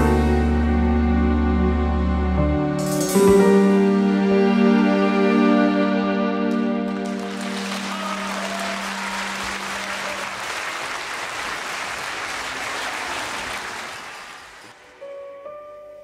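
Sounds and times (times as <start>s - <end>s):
audience applauding: 6.9s - 14.9s.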